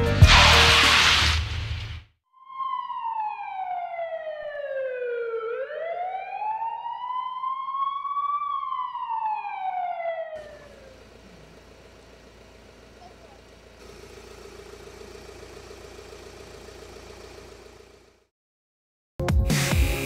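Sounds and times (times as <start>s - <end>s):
ambulance siren wailing: 2.4s - 13.6s.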